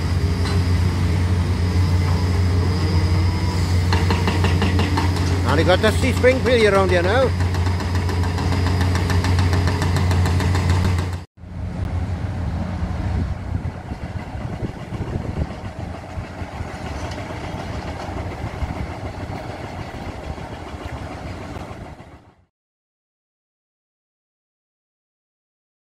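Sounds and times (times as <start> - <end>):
excavator working rubble: 0.0 - 11.3, 13.4 - 22.4
demolition machinery droning: 0.0 - 22.5.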